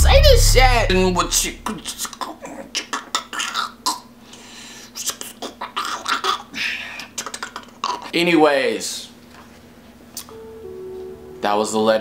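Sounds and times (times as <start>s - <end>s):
man breathing unsteadily: 4.2s - 5.0s.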